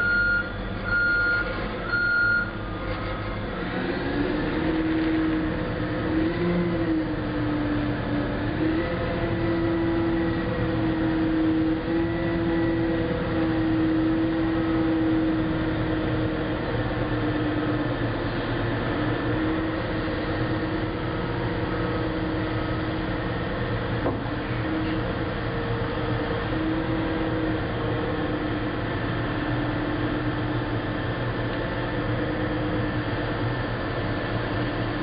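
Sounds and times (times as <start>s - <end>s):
diesel engine running: 0.0s - 35.0s.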